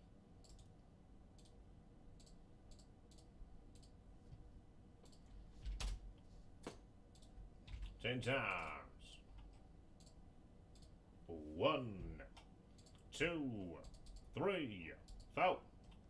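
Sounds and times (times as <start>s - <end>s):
computer mouse clicks: 0.4s - 1.6s, 2.2s - 4.0s, 5.0s - 6.0s, 6.6s - 11.0s, 12.0s - 13.1s, 13.8s - 14.3s
keyboard typing: 7.1s - 11.0s, 13.8s - 14.3s.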